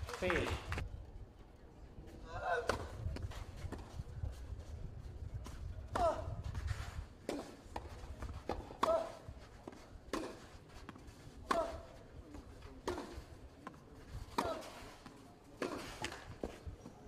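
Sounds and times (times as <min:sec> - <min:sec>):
tennis ball bouncing on clay: 0:07.2 - 0:16.6.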